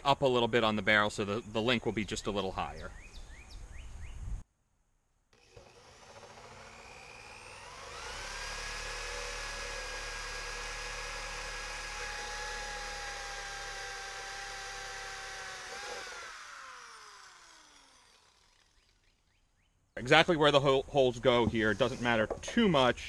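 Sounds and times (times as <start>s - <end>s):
electric drill whining: 5.4s - 19.0s.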